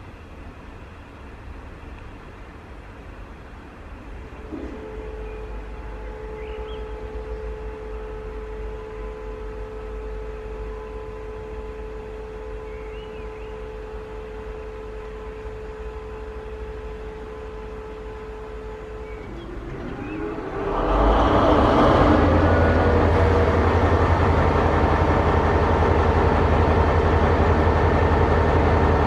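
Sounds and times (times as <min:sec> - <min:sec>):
low rumble: 0:18.7 - 0:29.0.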